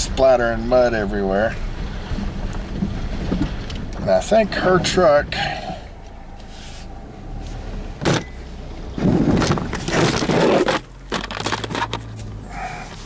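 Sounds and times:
low car hum: 0:00.0 - 0:13.0
scraping and rustling: 0:09.0 - 0:13.0.

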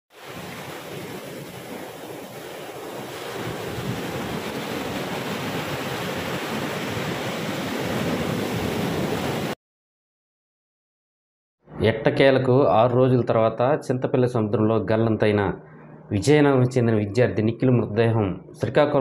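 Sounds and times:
sea surf breaking on sand: 0:00.1 - 0:09.6.

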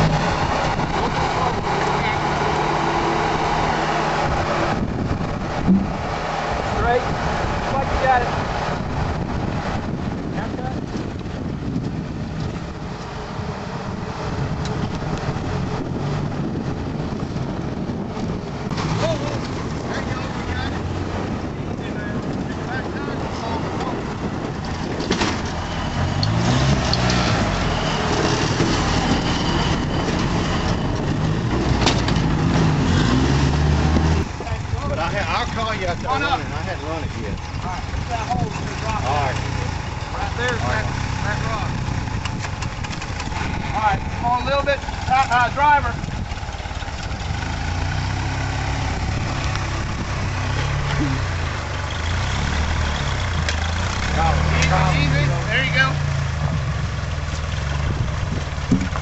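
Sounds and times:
engine revving under load: 0:00.0 - 0:59.0.

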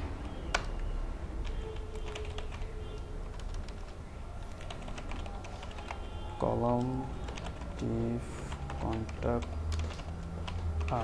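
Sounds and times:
keyboard keystroke clicks: 0:00.2 - 0:05.9.

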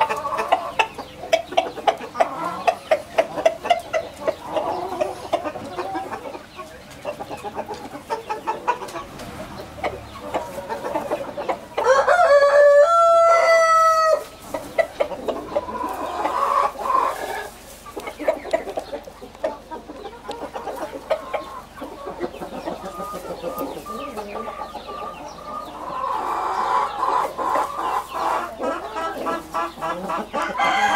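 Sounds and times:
chickens clucking softly: 0:00.0 - 0:30.9
rooster crowing: 0:11.8 - 0:14.3, 0:30.4 - 0:30.9.

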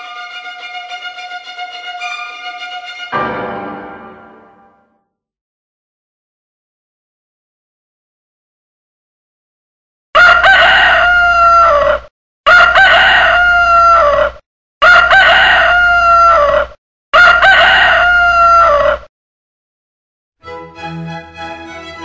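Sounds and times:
rooster crowing: 0:10.2 - 0:19.0.

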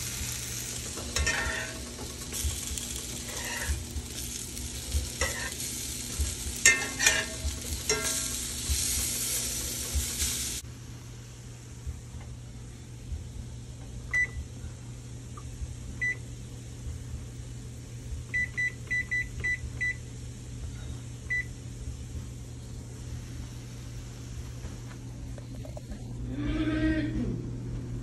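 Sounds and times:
steady low hum: 0:00.0 - 0:28.0
oven control panel beeps: 0:14.1 - 0:14.5, 0:16.0 - 0:16.2, 0:18.3 - 0:20.1, 0:21.3 - 0:21.6.

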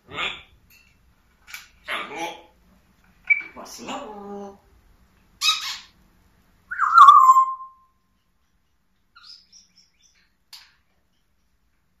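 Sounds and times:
parrot whistled call: 0:06.7 - 0:07.9
faint high chirps: 0:06.7 - 0:08.0.

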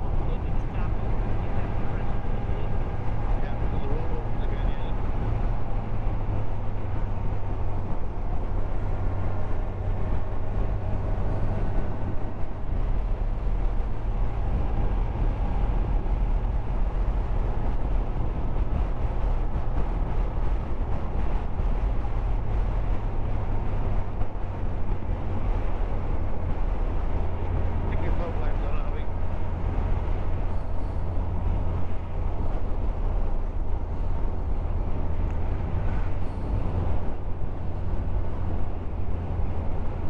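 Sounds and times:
wind and road rush: 0:00.0 - 0:40.0.

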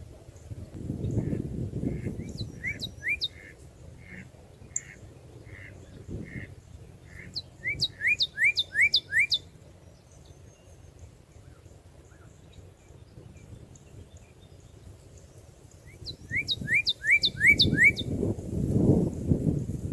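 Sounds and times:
bird singing whistled notes: 0:02.2 - 0:03.4, 0:07.1 - 0:18.2.

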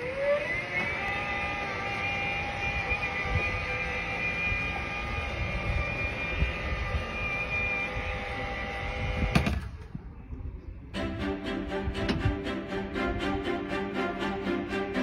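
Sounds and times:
mechanical hum with high whine: 0:00.0 - 0:15.0.

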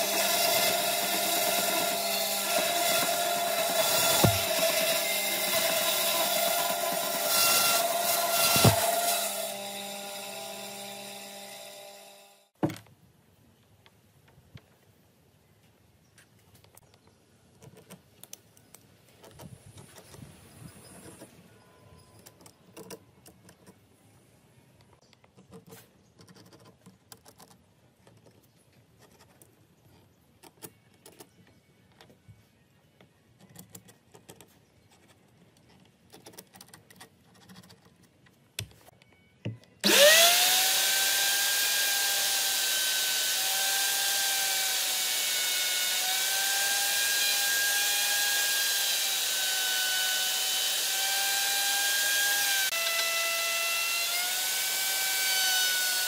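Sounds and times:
electric router running: 0:39.8 - 0:56.0.

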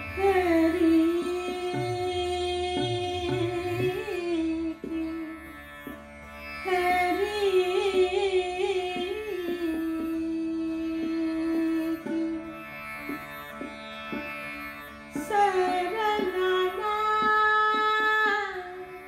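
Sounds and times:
woman singing classical vocal: 0:00.0 - 0:05.6, 0:06.6 - 0:12.5, 0:15.2 - 0:19.0
plucked tanpura drone: 0:00.0 - 0:19.0.

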